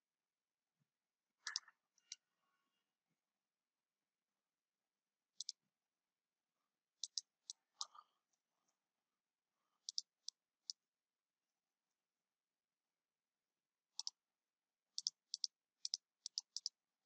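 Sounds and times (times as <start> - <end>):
computer mouse clicks: 1.4 - 2.2, 5.4 - 5.6, 7.0 - 8.0, 9.8 - 10.8, 14.0 - 14.2, 15.0 - 16.8.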